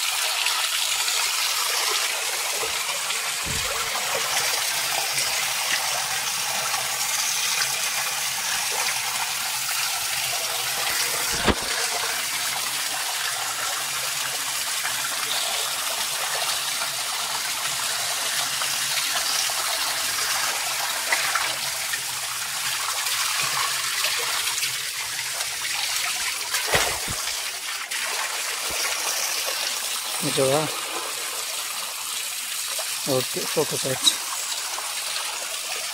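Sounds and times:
water gushing into stone tank: 0.0s - 35.9s
sharp knocks: 3.4s - 3.9s.

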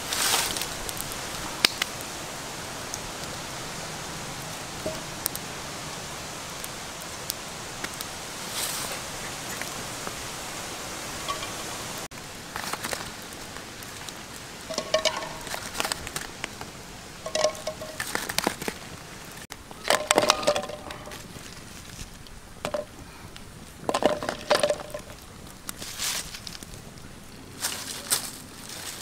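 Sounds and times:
steady hiss: 0.0s - 29.0s
dishes and utensils clinking: 11.2s - 11.7s, 14.7s - 16.0s, 17.2s - 18.1s.

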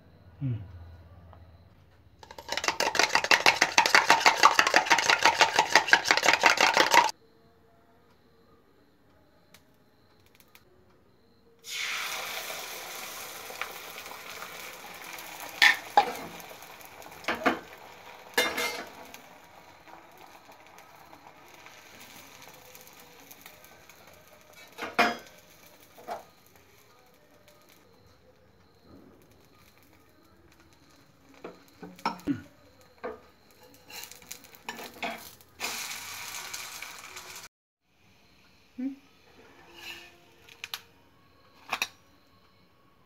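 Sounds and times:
egg sizzling in a pan: 2.2s - 7.1s, 11.6s - 27.8s, 33.5s - 37.5s.

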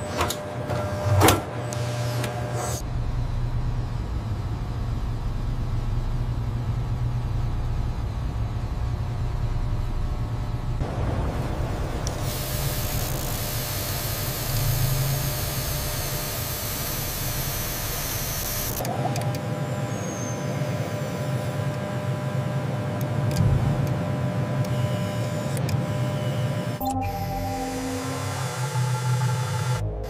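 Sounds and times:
low machine hum: 0.0s - 30.0s
steady tones: 26.8s - 30.0s.

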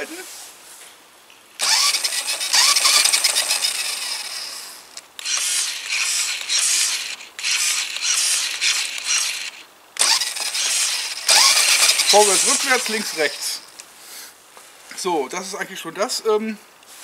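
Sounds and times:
toy truck motor whirring: 1.6s - 13.7s.

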